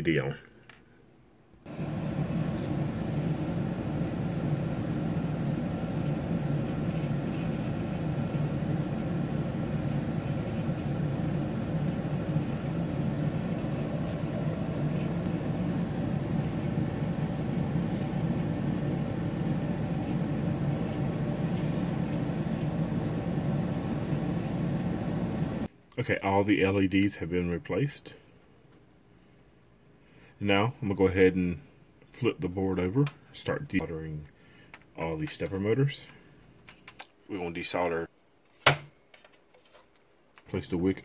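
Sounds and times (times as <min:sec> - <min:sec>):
low droning hum: 0:01.7 - 0:25.7.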